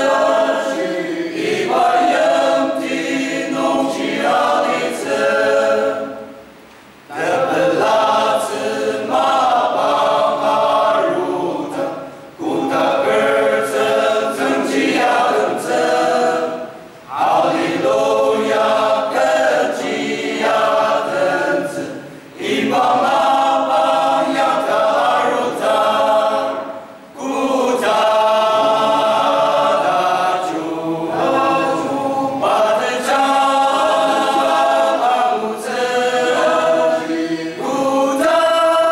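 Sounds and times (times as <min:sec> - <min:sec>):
male choir singing a hymn: 0:00.0 - 0:06.4, 0:07.1 - 0:38.9.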